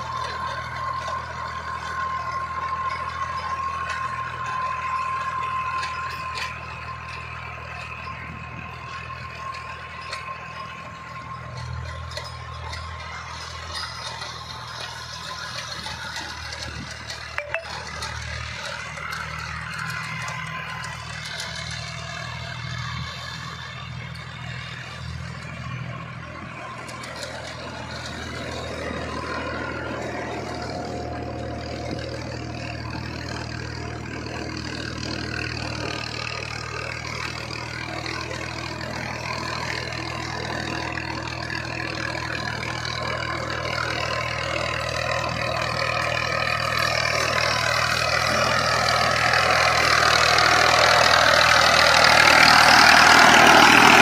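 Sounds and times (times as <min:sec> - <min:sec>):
diesel tractor engine under load: 0:00.0 - 0:54.0
rotary tiller churning soil: 0:00.0 - 0:54.0.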